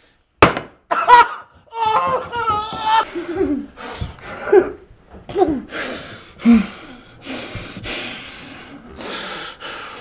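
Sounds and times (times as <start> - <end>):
sharp hissing breaths and gasps: 5.7 - 10.0.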